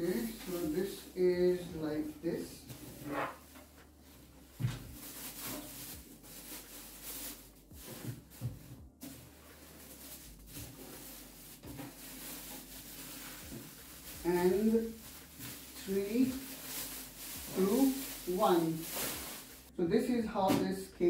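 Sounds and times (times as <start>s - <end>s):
packaging rustling: 3.3s - 19.7s.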